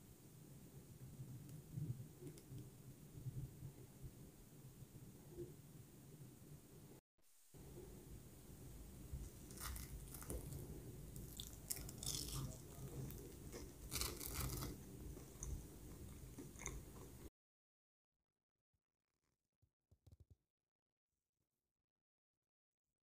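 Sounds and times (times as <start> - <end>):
crispy food crunching: 9.2 - 17.3.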